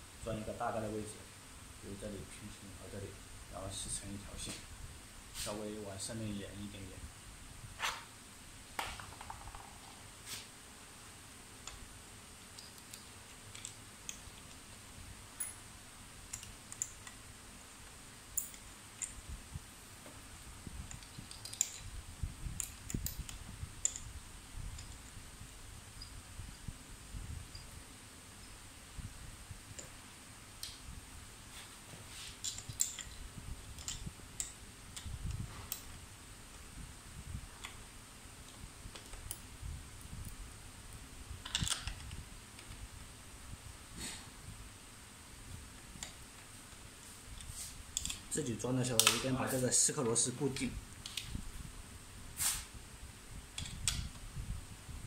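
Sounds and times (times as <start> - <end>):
small parts clicking and tapping: 8.8 - 10.1, 12.5 - 14.7, 15.4 - 15.6, 16.2 - 19.2, 20.8 - 22.0, 22.6 - 24.1, 24.7 - 25.1, 32.3 - 36.0, 38.4 - 39.5, 41.4 - 42.9, 45.8 - 48.4, 49.0 - 49.4, 50.6 - 51.4, 53.6 - 54.2
hex key clicking on a screw: 20.9 - 21.9.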